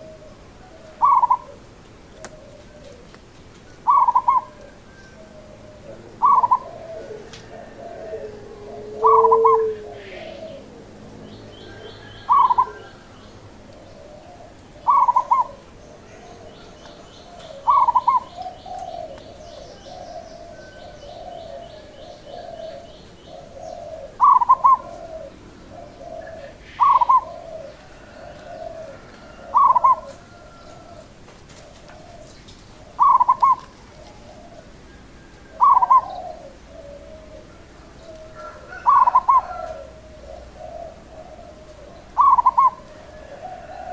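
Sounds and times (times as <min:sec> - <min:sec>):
dove cooing song: 0:00.0 - 0:43.9.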